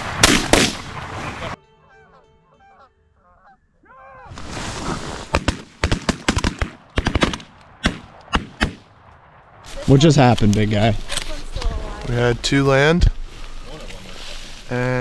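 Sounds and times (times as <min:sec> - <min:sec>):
shotgun blasts volley: 0:00.1 - 0:00.9
geese honking: 0:01.2 - 0:04.4.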